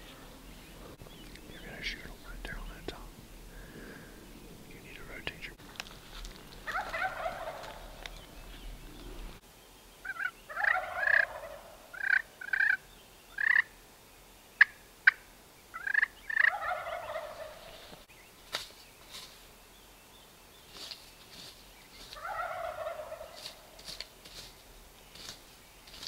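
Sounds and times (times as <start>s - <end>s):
short turkey calls: 6.6s - 8.0s, 10.0s - 12.8s, 14.6s - 18.0s, 22.0s - 24.5s
turkey gobbling: 6.6s - 8.2s, 10.0s - 12.8s, 15.8s - 17.9s, 22.1s - 24.0s.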